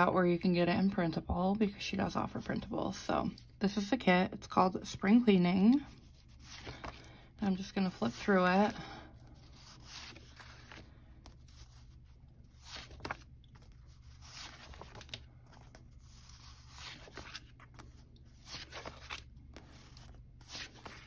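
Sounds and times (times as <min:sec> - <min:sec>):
paper stickers rustling: 0:05.8 - 0:08.8, 0:09.4 - 0:21.0
paper crinkles: 0:05.9 - 0:07.2, 0:07.9 - 0:21.0.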